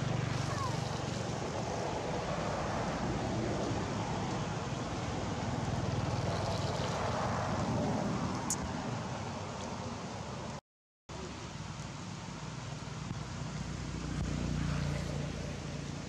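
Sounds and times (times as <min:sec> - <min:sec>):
outdoor rushing noise: 0:00.0 - 0:10.6.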